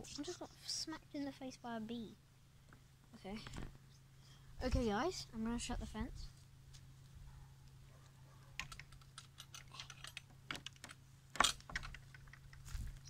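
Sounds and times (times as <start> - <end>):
dog collar clicking and rattling: 8.6 - 12.6.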